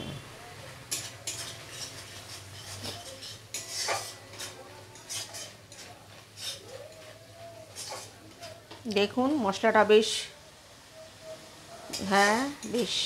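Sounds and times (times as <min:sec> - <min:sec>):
metal spatula scraping a pan: 0:00.8 - 0:08.6, 0:11.2 - 0:13.0.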